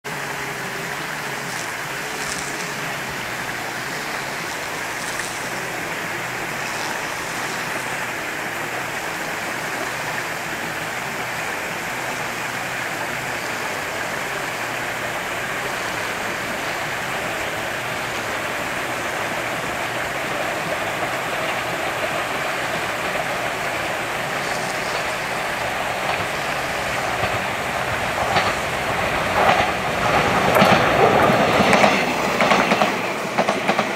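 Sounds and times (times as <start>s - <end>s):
electric train rushing: 0.0s - 33.9s
train wheels clacking on rail joints: 0.1s - 33.9s.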